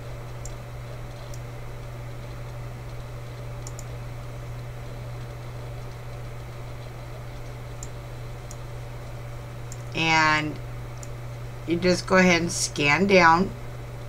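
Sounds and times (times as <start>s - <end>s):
low hum with hiss: 0.0s - 14.0s
faint clicks: 2.2s - 4.0s, 9.7s - 9.9s.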